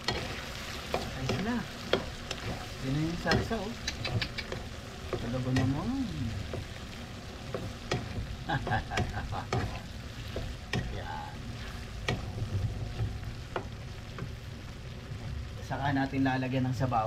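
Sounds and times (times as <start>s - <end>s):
spatula scraping frying pan: 0.0s - 5.8s, 9.0s - 13.8s
sauce sizzling: 0.0s - 17.0s.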